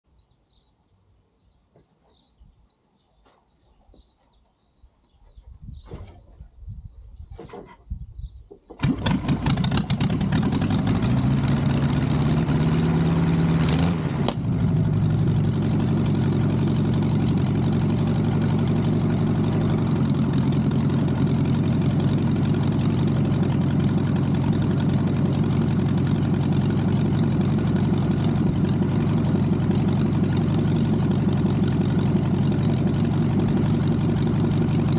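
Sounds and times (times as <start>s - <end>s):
aircraft engine starting and running: 8.7s - 34.9s
engine thumps: 14.1s - 34.9s.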